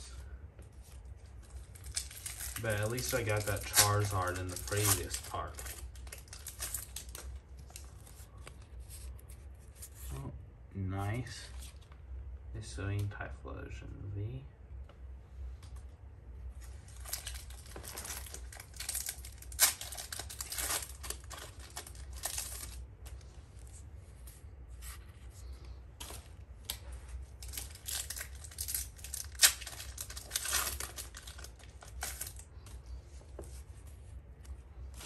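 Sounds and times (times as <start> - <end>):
cards being handled: 0.6 - 10.2
foil wrapper tearing and crinkling: 1.4 - 8.2, 16.9 - 22.8, 27.3 - 32.6.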